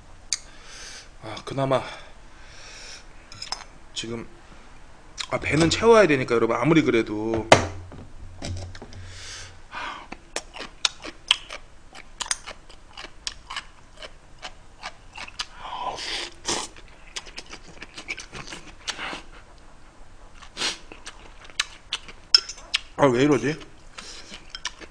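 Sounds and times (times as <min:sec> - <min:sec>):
wet chewing and smacking: 0:16.3 - 0:23.0, 0:23.6 - 0:24.9.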